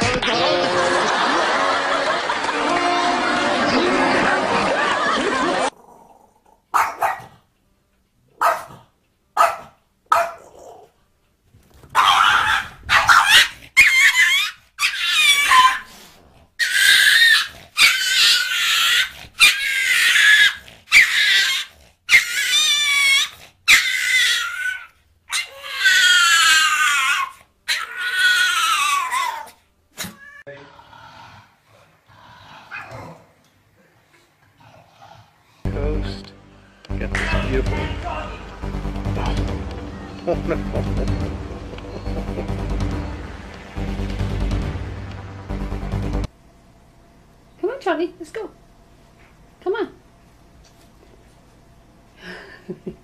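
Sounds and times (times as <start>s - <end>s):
dog yelping and whining: 11.9s - 30.4s.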